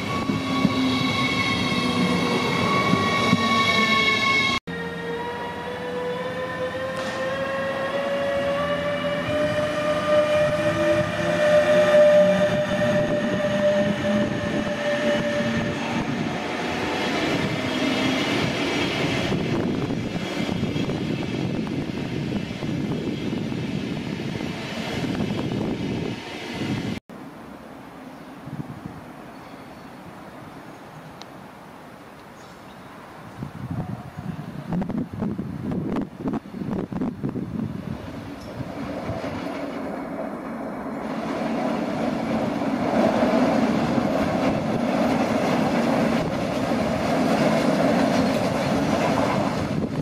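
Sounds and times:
electric locomotive whine: 0:00.0 - 0:27.0, 0:33.0 - 0:50.0
train wheels rumbling and clattering: 0:36.8 - 0:50.0.

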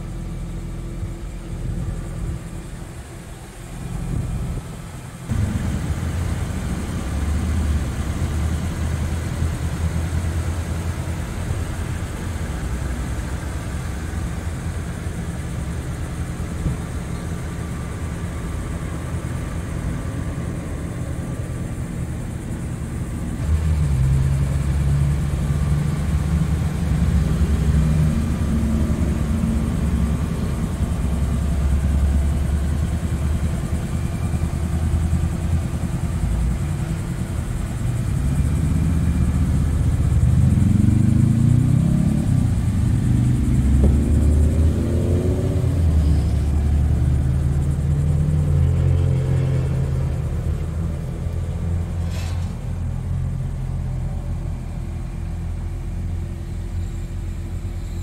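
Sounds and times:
car engine idling: 0:00.0 - 0:58.0.

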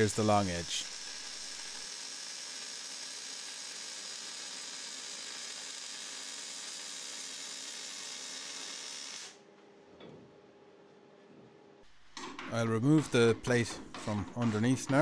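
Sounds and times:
welding arc hissing: 0:00.0 - 0:09.4.

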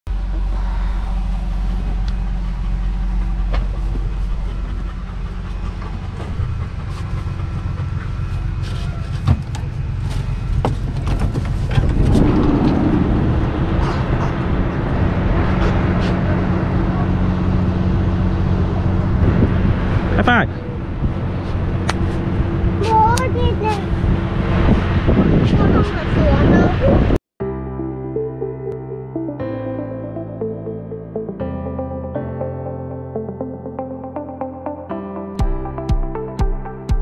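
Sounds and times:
vehicle engine running: 0:00.1 - 0:27.2.

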